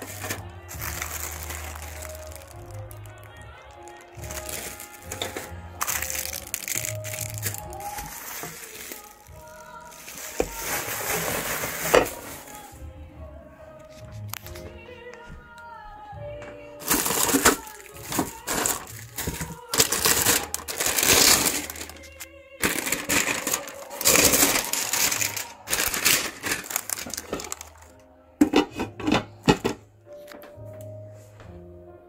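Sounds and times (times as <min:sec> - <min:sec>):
plastic film crinkling: 0:00.0 - 0:12.8, 0:16.8 - 0:28.0
quiet background music: 0:00.0 - 0:32.0.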